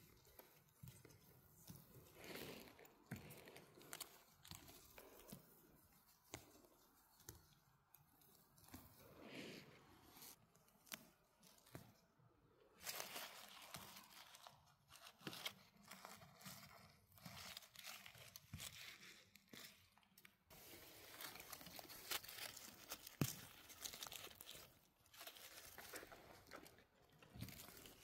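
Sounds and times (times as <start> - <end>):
rustling of dry forest litter: 12.8 - 19.7, 20.5 - 28.0.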